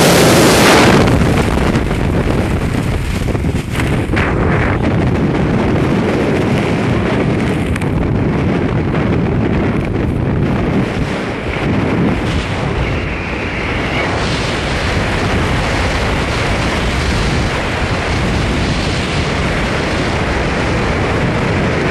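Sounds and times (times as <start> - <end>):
wind rushing over microphone: 0.0 - 21.9.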